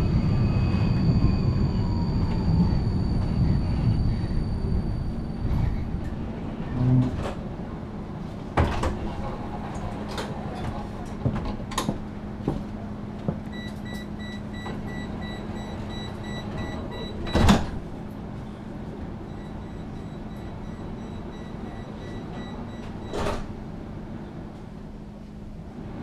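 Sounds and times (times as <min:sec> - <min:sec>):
tram low hum: 0:00.0 - 0:26.0
sliding doors thumping shut: 0:08.5 - 0:12.6, 0:17.2 - 0:17.9, 0:22.9 - 0:23.6
door warning beeps: 0:13.5 - 0:17.8, 0:19.2 - 0:23.4.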